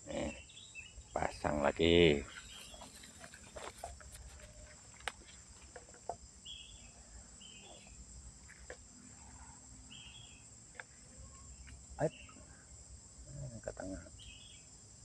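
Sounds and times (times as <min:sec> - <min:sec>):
bird chirps: 0:00.0 - 0:04.8, 0:06.4 - 0:10.5, 0:11.2 - 0:12.6, 0:13.9 - 0:14.7
insects buzzing: 0:00.0 - 0:15.0.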